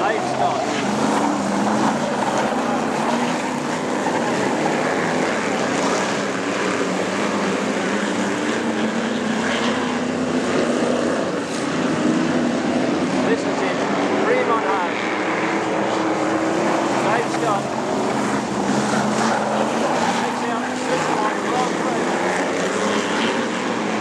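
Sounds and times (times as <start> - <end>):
racing car engines droning: 0.0 - 24.0.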